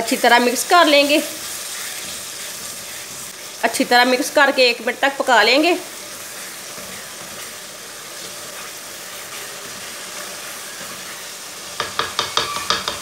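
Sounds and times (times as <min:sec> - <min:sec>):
food sizzling in a pan: 0:00.0 - 0:13.0
wooden spoon stirring: 0:00.1 - 0:03.6
spoon knocking on pan: 0:11.7 - 0:13.0.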